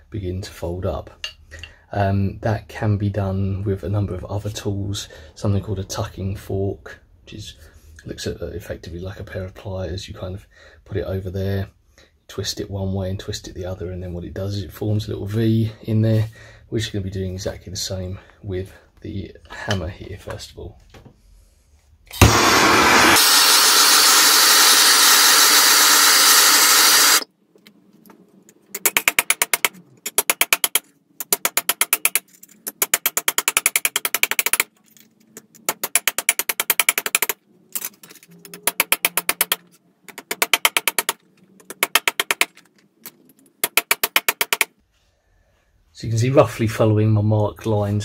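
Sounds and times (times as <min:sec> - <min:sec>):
blowtorch flame hissing: 0:22.2 - 0:27.2.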